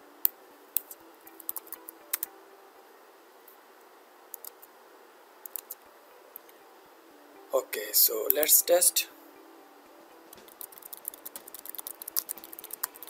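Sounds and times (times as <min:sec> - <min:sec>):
faint room hiss: 0:00.0 - 0:13.0
keyboard and mouse clicking: 0:00.8 - 0:02.3, 0:04.3 - 0:04.7, 0:05.4 - 0:05.8, 0:10.3 - 0:13.0.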